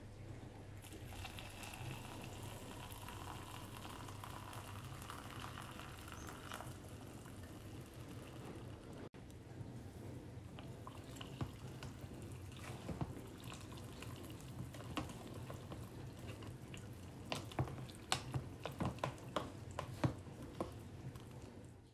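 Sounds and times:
metal spoon stirring thick food in pot: 11.1s - 21.4s.

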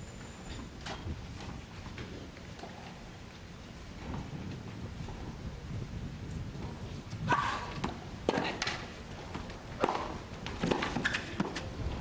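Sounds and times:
tennis ball struck with rackets: 9.8s - 11.6s.

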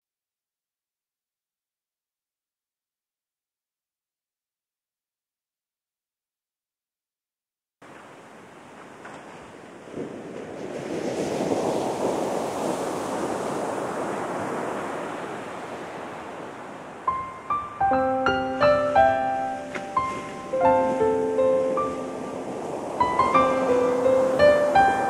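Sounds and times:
ocean surf washing in: 7.8s - 25.0s
piano music single notes: 17.1s - 25.0s.

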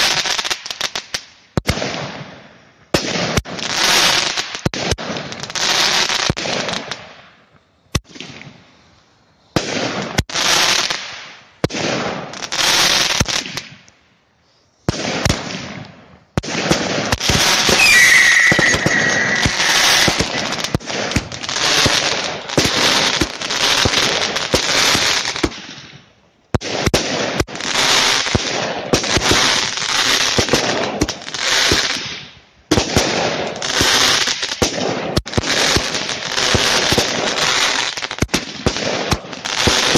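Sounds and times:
fireworks bangs: 14.9s - 25.9s
fireworks hiss: 17.1s - 25.5s
firework whistle: 17.2s - 22.1s.

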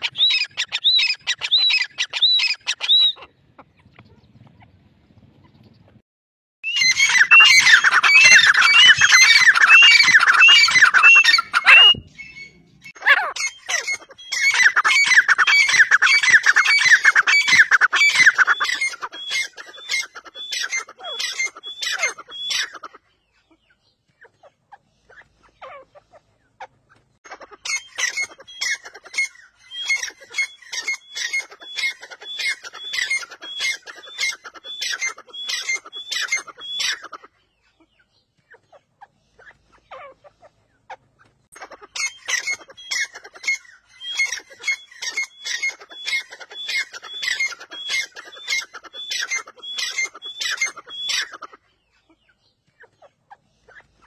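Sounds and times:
birds calling ringing notes: 6.6s - 23.3s, 27.6s - 37.6s, 41.6s - 51.5s.

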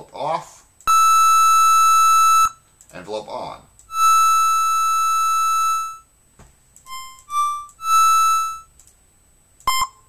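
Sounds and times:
synthesized tones: 0.9s - 2.6s, 3.9s - 6.1s, 6.9s - 8.7s
click: 2.8s - 3.0s, 8.8s - 9.0s.

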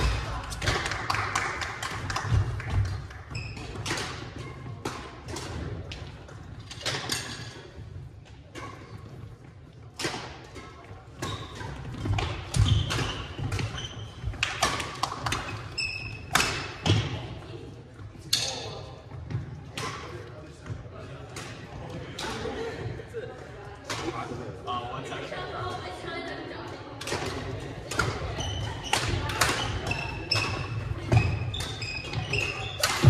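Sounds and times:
sneakers squeaking: 3.3s - 5.7s, 6.3s - 17.2s, 27.9s - 33.0s
rackets striking shuttlecock: 9.9s - 17.1s, 27.0s - 33.0s.

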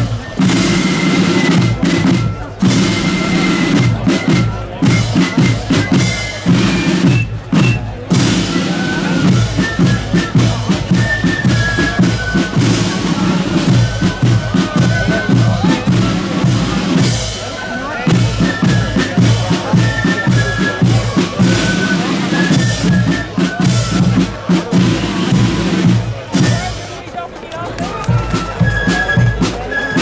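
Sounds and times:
bass drum and side drums: 0.0s - 17.5s
flute melody: 0.0s - 30.0s.

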